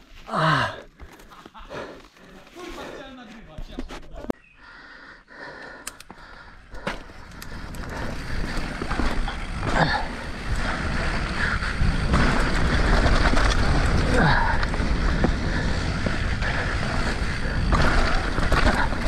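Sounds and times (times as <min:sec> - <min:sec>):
bike rattling: 0:06.1 - 0:19.0
bike tyres rolling on dirt: 0:06.2 - 0:19.0.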